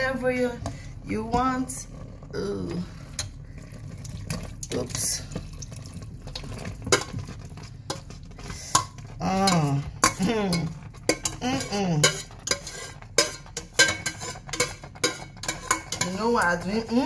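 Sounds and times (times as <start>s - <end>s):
metal spoon scraping pots: 6.3s - 17.0s.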